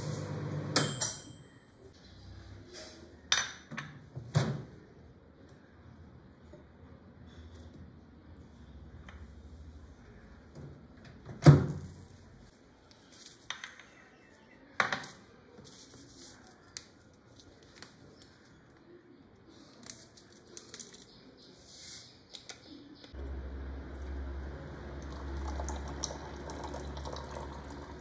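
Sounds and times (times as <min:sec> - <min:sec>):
low hum: 0:23.2 - 0:28.0.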